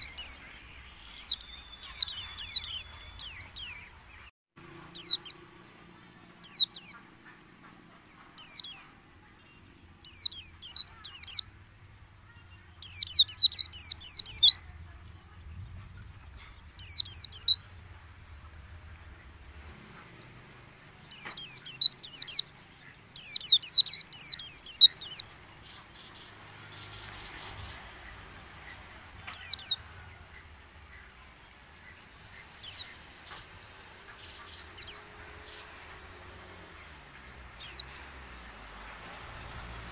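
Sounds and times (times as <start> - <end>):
bird twittering: 0.0 - 4.0, 10.0 - 11.5, 12.3 - 15.0, 16.0 - 18.0, 20.0 - 27.0, 37.1 - 38.4.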